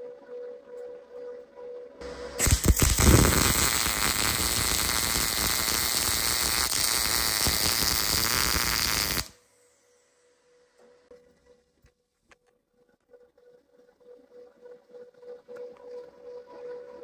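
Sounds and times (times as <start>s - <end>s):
welding arc crackling: 2.4s - 9.4s.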